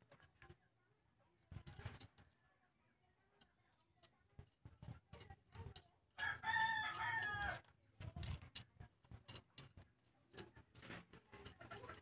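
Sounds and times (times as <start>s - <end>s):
rooster crowing: 6.2s - 7.6s.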